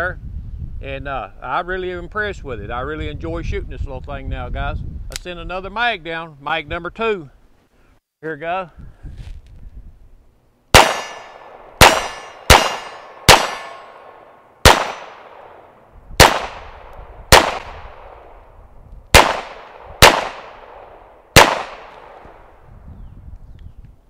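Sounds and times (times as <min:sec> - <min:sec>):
pistol shots: 0:10.7 - 0:18.4, 0:19.1 - 0:22.5.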